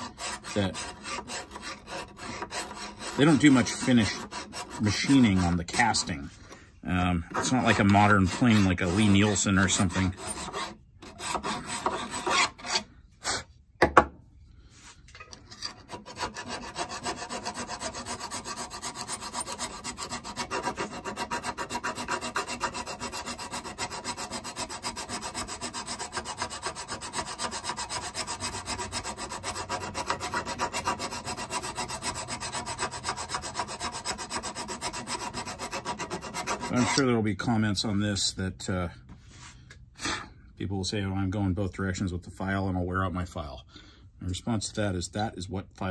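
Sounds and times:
hand file rasping on metal: 0.0 - 13.5, 15.2 - 37.2.

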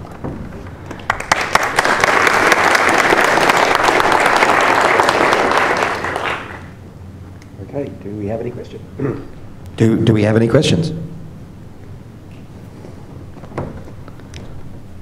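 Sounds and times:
audience applauding: 0.6 - 6.8.

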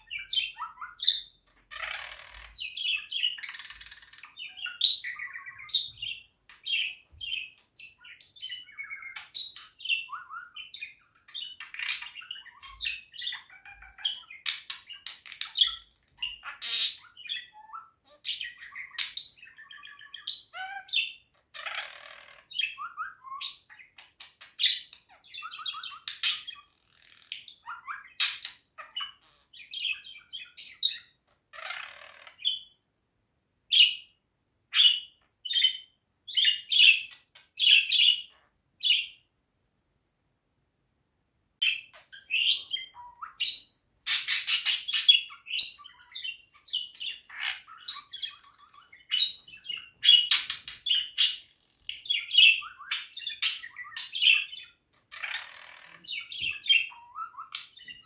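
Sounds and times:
budgerigar chattering: 0.0 - 23.9, 41.6 - 58.0.

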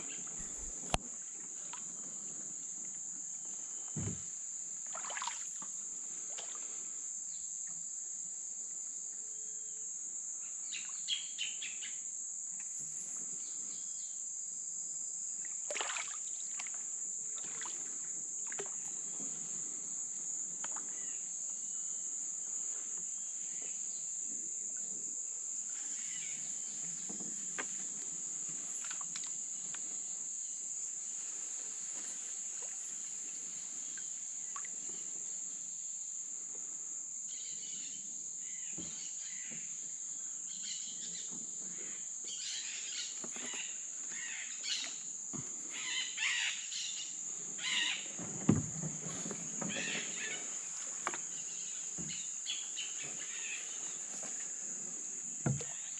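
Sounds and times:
insect chorus: 0.0 - 55.9
canoe paddle splashing: 0.2 - 2.0, 4.8 - 6.8, 15.7 - 19.2, 28.8 - 29.4, 31.5 - 34.9, 48.1 - 55.9.

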